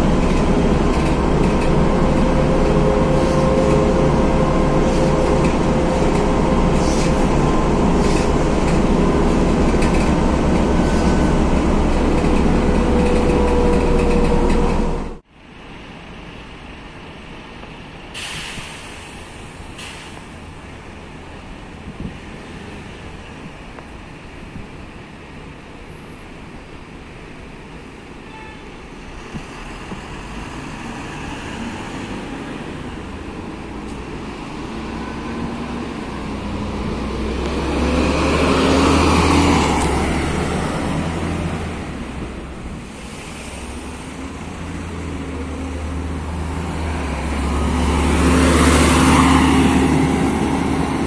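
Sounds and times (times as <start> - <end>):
bus diesel engine passing: 0.0 - 16.7, 28.8 - 51.0.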